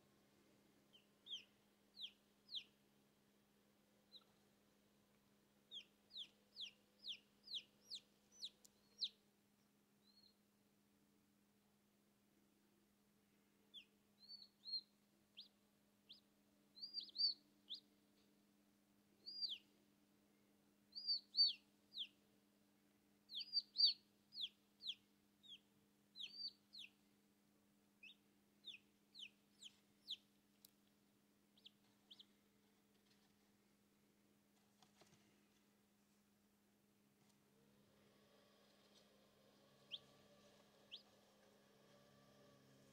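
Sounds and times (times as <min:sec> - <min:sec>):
chick peeping inside egg: 0:00.8 - 0:02.8, 0:04.0 - 0:04.4, 0:05.7 - 0:09.3, 0:10.0 - 0:10.4, 0:13.7 - 0:18.0, 0:19.2 - 0:19.8, 0:20.9 - 0:22.2, 0:23.3 - 0:27.0, 0:28.0 - 0:30.8, 0:31.5 - 0:32.4, 0:37.8 - 0:42.9.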